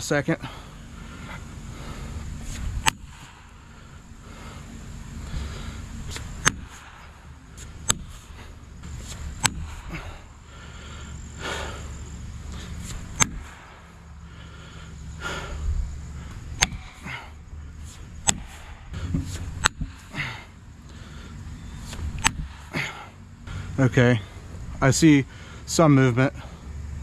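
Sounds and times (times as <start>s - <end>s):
hammer striking metal wedges: 6.4s - 7.0s, 13.2s - 13.5s, 16.6s - 16.8s, 18.2s - 18.5s.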